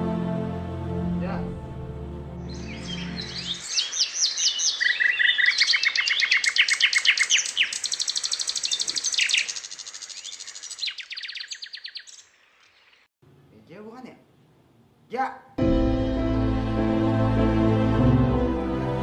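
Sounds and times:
songbirds chirping and trilling: 2.4 - 13.1.

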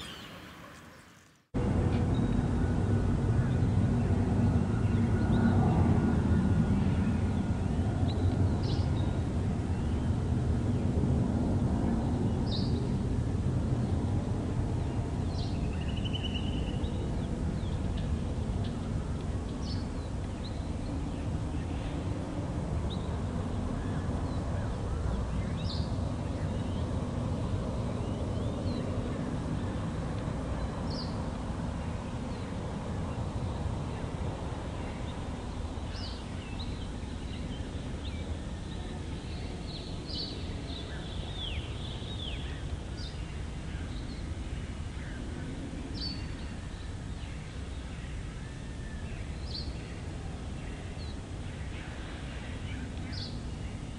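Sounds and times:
bird chirps and trills: 0.0 - 1.5
distant jet airliner rumble: 0.0 - 53.9.

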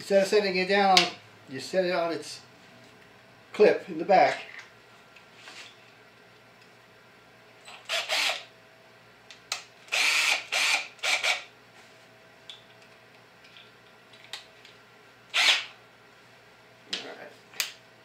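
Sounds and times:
drill chuck ratcheting: 7.7 - 8.5, 9.9 - 11.4, 15.3 - 15.7.

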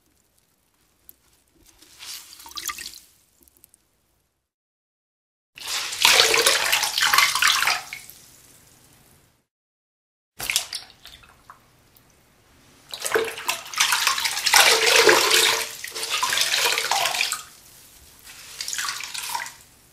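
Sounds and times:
water splashing and trickling: 0.0 - 3.9, 5.6 - 8.7, 12.9 - 19.8
wet clothes being wrung out: 1.2 - 3.4, 5.6 - 8.2, 12.9 - 19.7.

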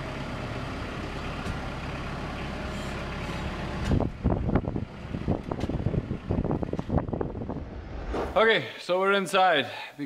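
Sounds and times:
tractor engine running: 0.0 - 7.9.

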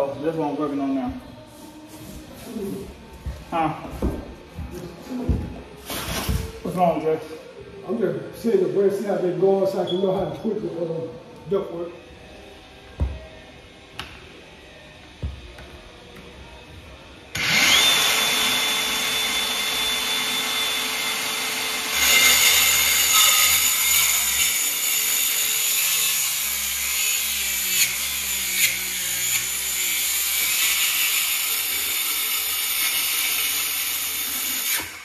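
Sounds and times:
circular saw cutting wood: 17.3 - 35.0
circular saw whining: 17.3 - 35.0.

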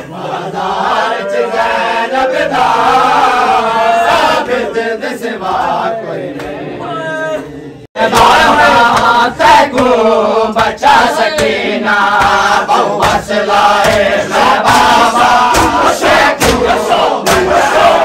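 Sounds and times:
crowd of men chanting: 0.0 - 18.0
hands slapping chests: 8.2 - 10.0, 10.6 - 17.6.

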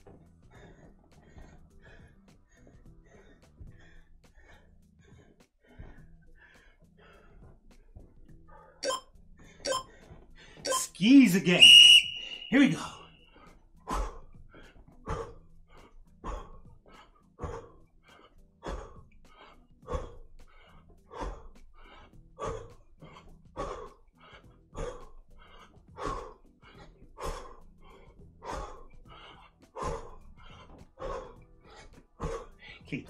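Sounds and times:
man exhaling sharply: 11.5 - 13.1.

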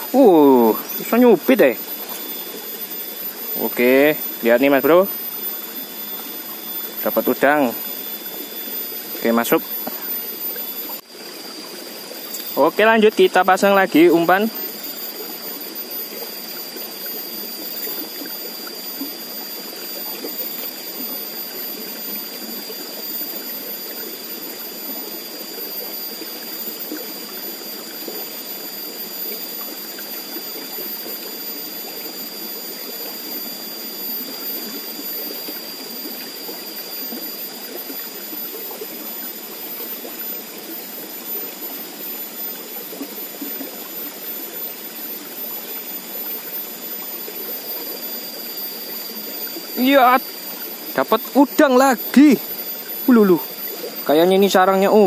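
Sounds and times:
water rushing and babbling: 0.0 - 55.0.

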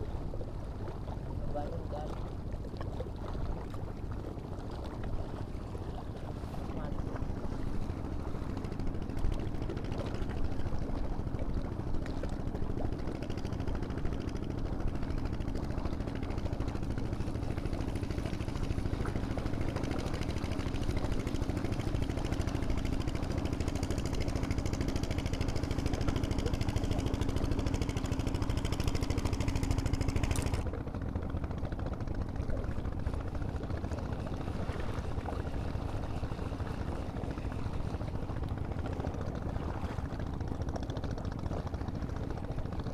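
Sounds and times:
small engine humming: 12.4 - 42.9.

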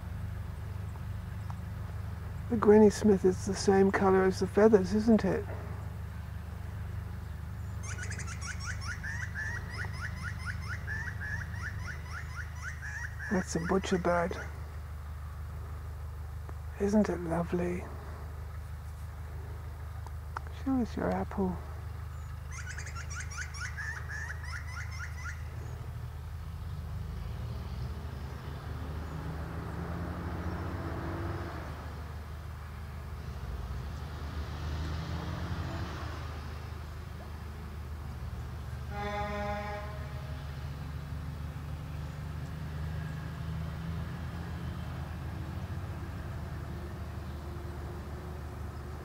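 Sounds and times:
low rumble of traffic: 0.0 - 49.0
vehicle engine passing: 0.0 - 49.0
bird chirping: 5.7 - 14.8, 21.8 - 30.7.

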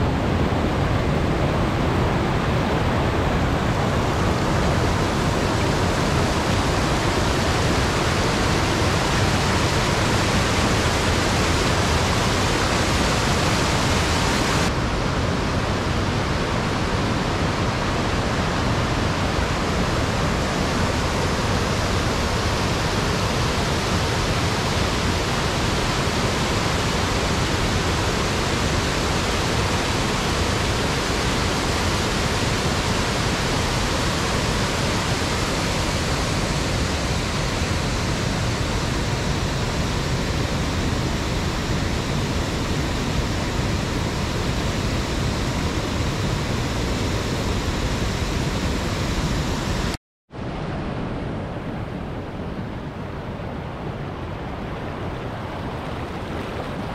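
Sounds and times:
waterfall roaring: 0.0 - 56.9.

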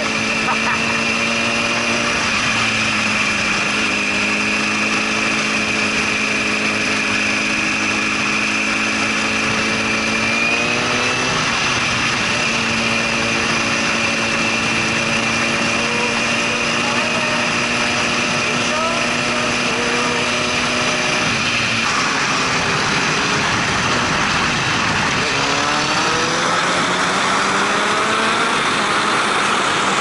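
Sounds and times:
motorcycle engine running: 0.0 - 30.0.

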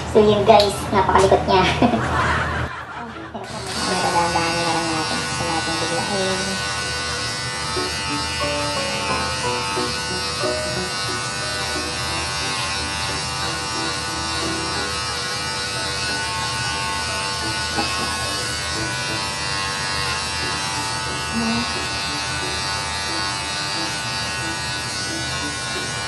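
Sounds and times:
electric clippers running: 3.2 - 26.0
background music: 6.6 - 26.0.

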